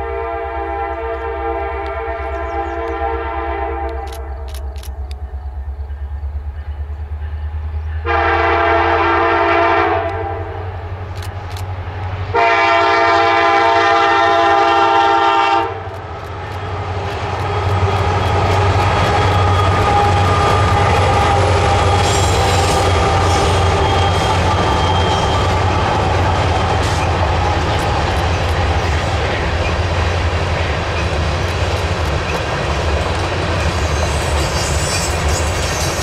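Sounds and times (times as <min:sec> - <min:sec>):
locomotive horn chord: 0:00.0 - 0:04.1, 0:08.0 - 0:10.8, 0:12.3 - 0:15.9
diesel locomotive engines: 0:00.0 - 0:36.0
train wheels on rails: 0:03.8 - 0:36.0.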